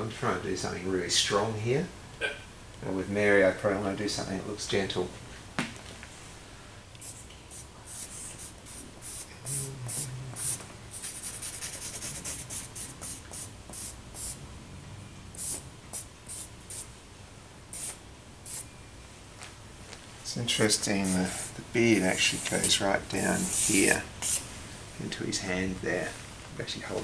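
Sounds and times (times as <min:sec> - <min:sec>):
charcoal scratching on paper: 0:07.0 - 0:14.4, 0:20.6 - 0:24.4.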